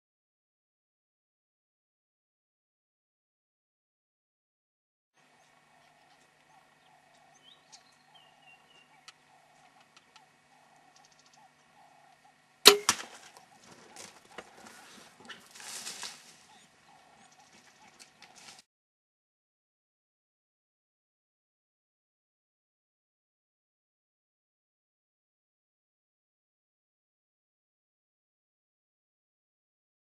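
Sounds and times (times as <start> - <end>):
rustling and scuffling: 13.0 - 16.5, 17.4 - 18.6.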